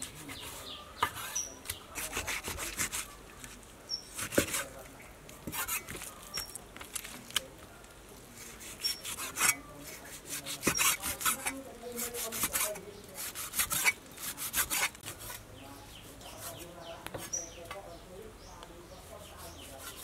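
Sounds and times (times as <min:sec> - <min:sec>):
cleaver slicing meat: 0:00.0 - 0:03.2, 0:04.1 - 0:04.8, 0:05.4 - 0:07.4, 0:08.4 - 0:15.4.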